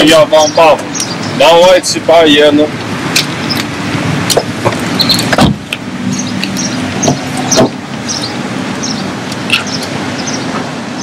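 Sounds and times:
car engine idling: 0:00.1 - 0:11.0
heavy thump: 0:04.4 - 0:05.7.

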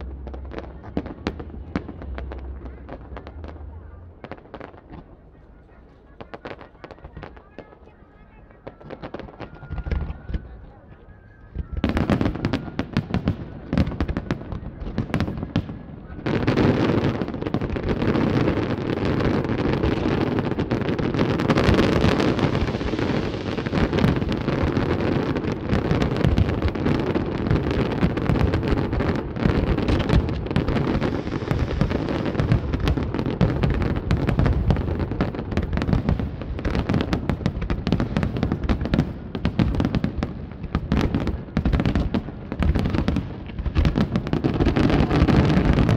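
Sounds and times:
fireworks bangs: 0:00.0 - 0:45.9.

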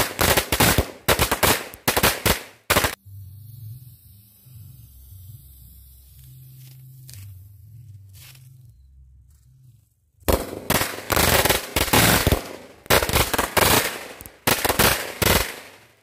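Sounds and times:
firecrackers banging: 0:00.0 - 0:03.0, 0:10.3 - 0:16.0
fuse hissing: 0:01.6 - 0:07.6.

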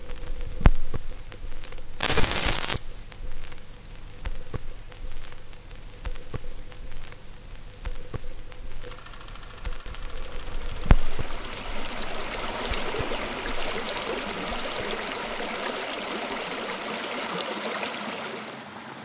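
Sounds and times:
faint steady hum: 0:00.0 - 0:19.0
short burst of noise: 0:02.0 - 0:02.8
sharp clicks and knocks: 0:07.8 - 0:11.4.

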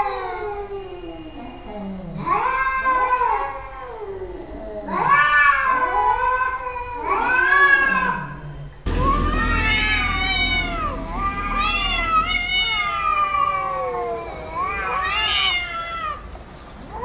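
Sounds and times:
cat meowing: 0:09.0 - 0:16.2.

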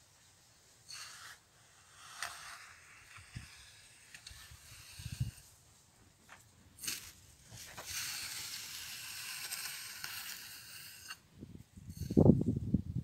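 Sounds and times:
blade scraping through soil: 0:00.8 - 0:05.9, 0:06.8 - 0:11.3.

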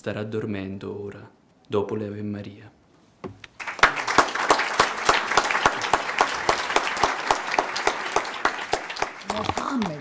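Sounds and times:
audience applauding: 0:03.6 - 0:10.0.

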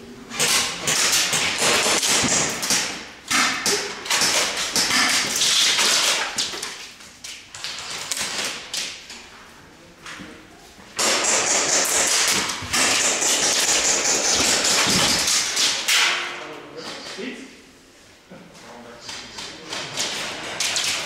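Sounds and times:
airsoft guns firing: 0:00.4 - 0:06.2, 0:11.0 - 0:16.1.

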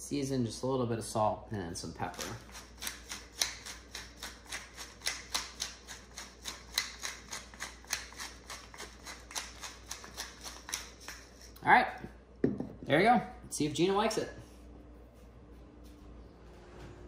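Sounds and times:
pepper mill grinding: 0:02.1 - 0:11.6.

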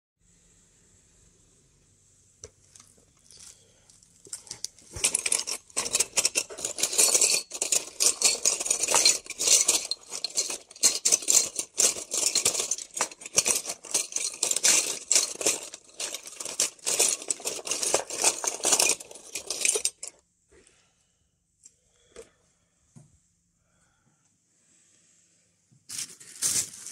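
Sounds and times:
metal tubes clinking and rattling: 0:02.8 - 0:20.2.

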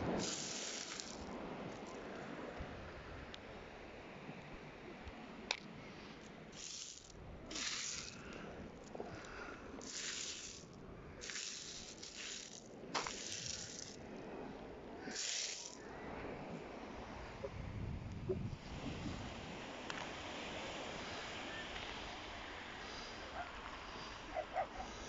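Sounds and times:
pebbles clattering: 0:00.2 - 0:02.0, 0:06.5 - 0:08.3, 0:09.8 - 0:14.0, 0:15.1 - 0:15.8.

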